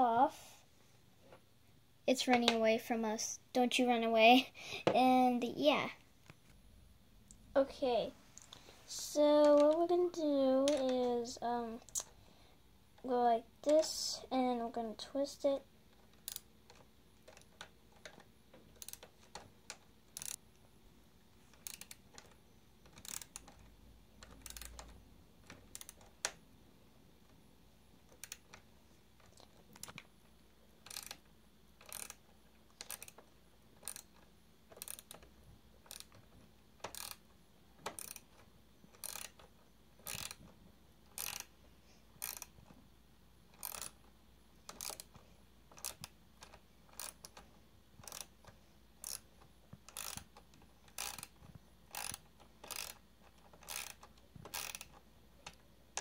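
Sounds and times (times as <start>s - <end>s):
ratchet wrench clicking: 16.2s - 16.5s, 18.8s - 19.4s, 20.1s - 20.4s, 21.5s - 24.9s, 25.7s - 26.0s, 30.8s - 31.2s, 31.8s - 32.2s, 32.8s - 33.2s, 33.8s - 36.2s, 36.8s - 37.2s, 37.8s - 39.4s, 40.0s - 40.4s, 41.1s - 41.5s, 42.2s - 42.5s, 43.6s - 44.0s, 44.7s - 45.1s, 45.7s - 47.4s, 48.0s - 48.3s, 49.0s - 49.3s, 49.9s - 50.3s, 50.9s - 56.0s.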